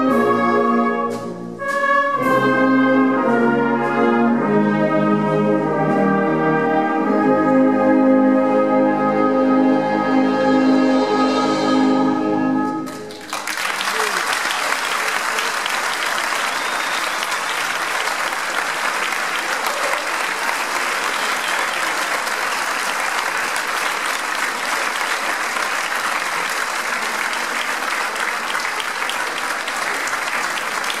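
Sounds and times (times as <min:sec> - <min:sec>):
audience applauding: 0:12.8 - 0:31.0.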